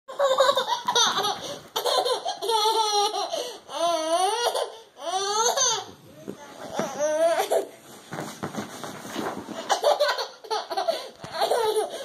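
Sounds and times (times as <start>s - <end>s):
toddler laughing loudly: 0.1s - 3.4s, 9.7s - 12.0s.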